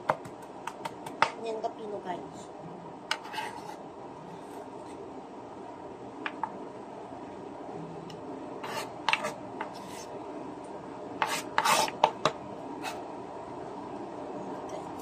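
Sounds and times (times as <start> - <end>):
knife scraping on cutting board: 3.2 - 3.8, 8.6 - 10.1, 11.2 - 12.0.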